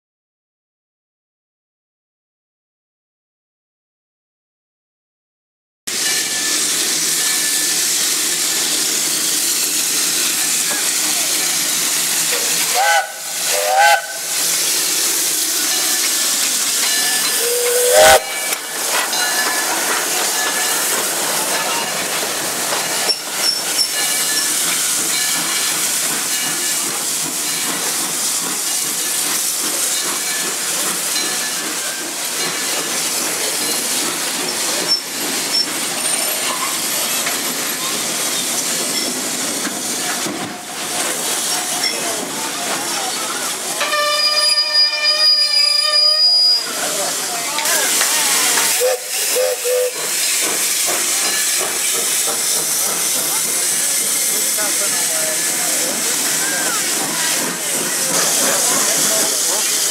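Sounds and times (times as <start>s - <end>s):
steam locomotive hissing: 5.9s - 59.9s.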